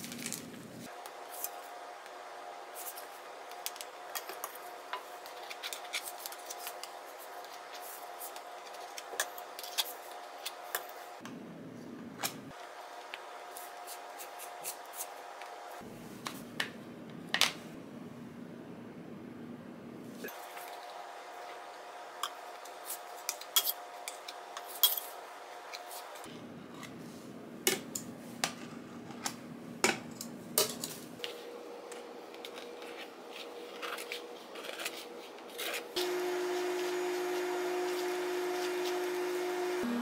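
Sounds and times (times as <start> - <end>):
utensils clinking on steel table: 23.2 - 25.2, 29.8 - 31.1.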